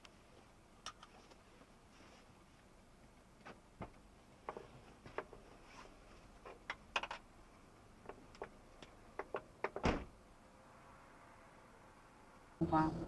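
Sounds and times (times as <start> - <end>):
road noise: 7.4 - 13.0.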